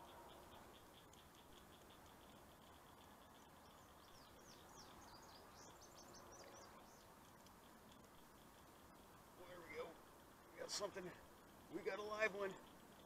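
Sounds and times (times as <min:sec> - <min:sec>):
bird chirping trill: 0:00.0 - 0:08.8.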